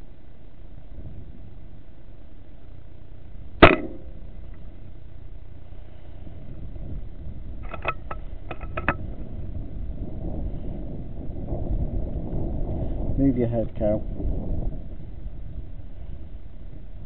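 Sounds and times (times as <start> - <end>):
low rumble: 0.0 - 17.0
air rifle shot: 3.6 - 4.2.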